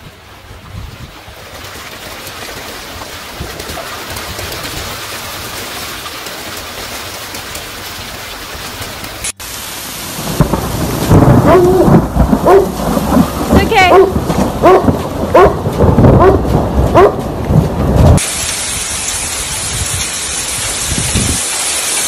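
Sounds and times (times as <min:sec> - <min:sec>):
rough rumbling: 0:09.8 - 0:18.2
hail pelting on a car: 0:10.1 - 0:15.9.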